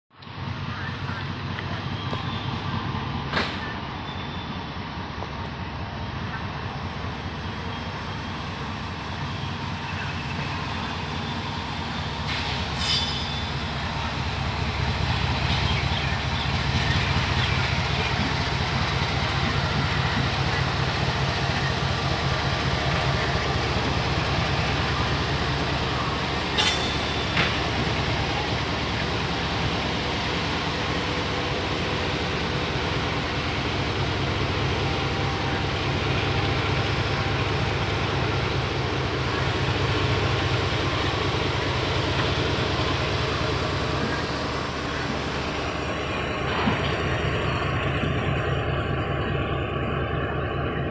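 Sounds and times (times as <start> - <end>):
wheels rumbling on rail: 0.1 - 50.9
diesel locomotive engine throbbing: 0.2 - 50.9.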